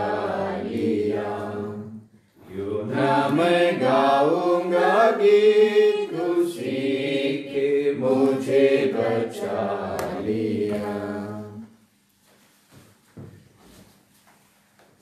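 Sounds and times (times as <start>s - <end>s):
person singing a devotional hymn: 0.0s - 11.8s.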